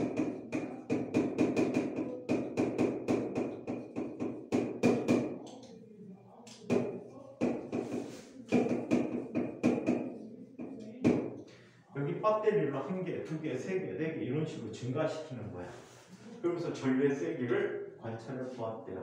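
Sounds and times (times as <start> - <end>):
sharp taps of writing on board: 0.0 - 5.7, 6.5 - 11.4.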